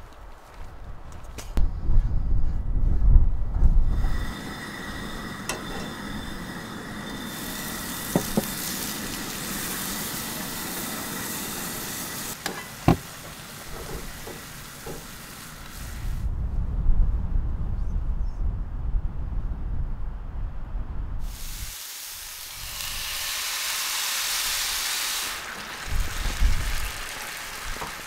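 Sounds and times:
food sizzling in a frying pan: 0:04.1 - 0:16.2, 0:21.3 - 0:28.0.

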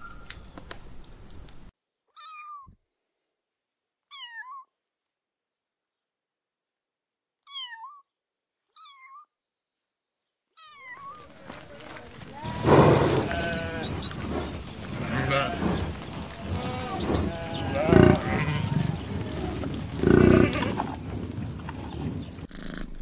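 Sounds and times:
cat meowing: 0:02.2 - 0:02.7, 0:07.5 - 0:08.0, 0:08.8 - 0:09.3
loud animal calls: 0:11.0 - 0:21.0, 0:22.5 - 0:23.0.

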